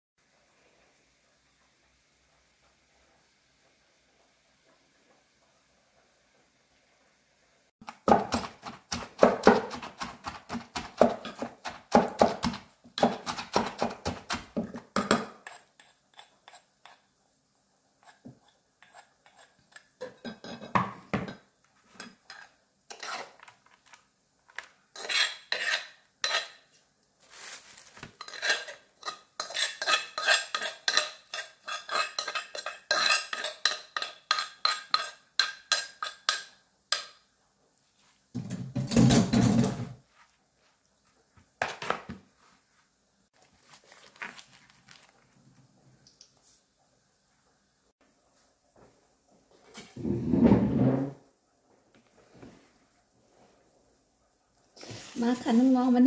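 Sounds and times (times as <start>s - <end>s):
metal spoon scraping and clinking: 15.0s - 17.0s, 18.0s - 20.7s, 21.9s - 24.0s, 25.0s - 26.6s, 28.2s - 37.2s.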